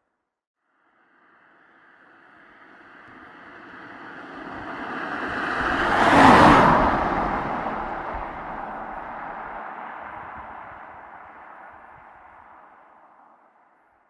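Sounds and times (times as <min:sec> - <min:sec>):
vehicle passing by: 0:02.2 - 0:13.0.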